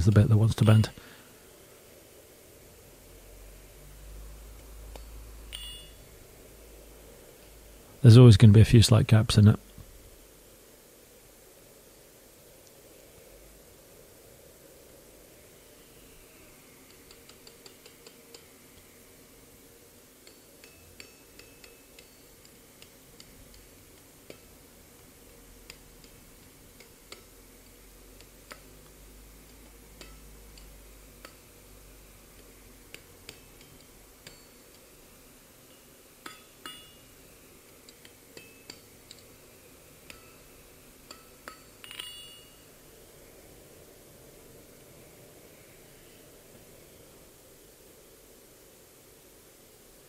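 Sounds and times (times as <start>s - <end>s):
hammer tapping hot metal on anvil: 4.9s - 6.0s, 16.9s - 18.5s, 20.2s - 31.5s, 32.3s - 34.9s, 35.6s - 37.2s, 37.8s - 39.3s, 40.0s - 42.7s
loud ringing hammer strikes: 5.5s - 6.0s, 35.7s - 37.1s, 41.1s - 42.7s.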